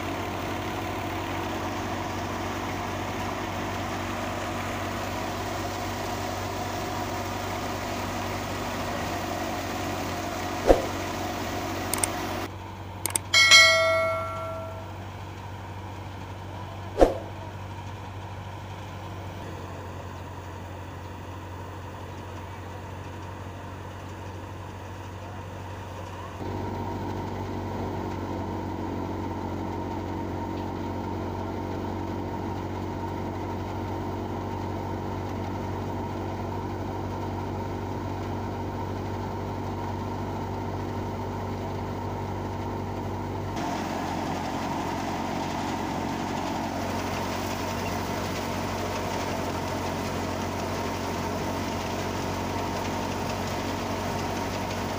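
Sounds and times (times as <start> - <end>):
thresher running: 8.0 - 15.0, 43.5 - 54.9
sharp click: 11.9 - 12.1, 13.1 - 13.5.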